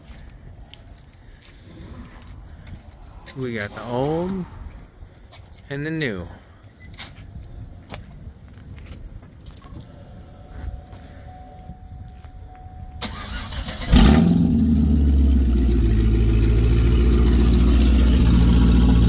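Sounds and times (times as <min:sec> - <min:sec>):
car engine starter cranking: 0:13.0 - 0:15.5
car engine idling: 0:13.0 - 0:19.0.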